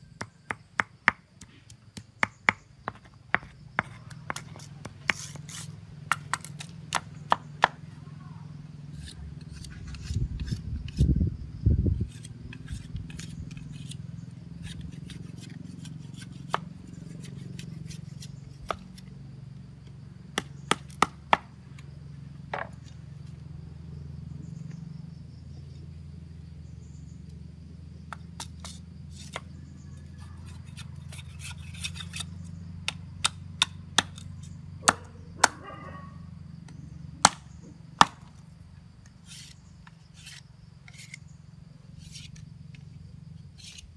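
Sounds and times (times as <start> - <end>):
knife cutting bamboo stick: 0.4 - 7.8, 8.9 - 11.1, 12.0 - 19.1, 28.1 - 35.6, 39.0 - 41.3, 42.0 - 42.8, 43.5 - 43.9.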